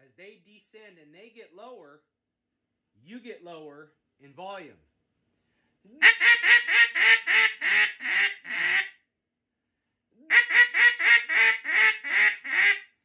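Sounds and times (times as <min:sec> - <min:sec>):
duck call quacking: 0:06.0 - 0:08.9, 0:10.3 - 0:12.8.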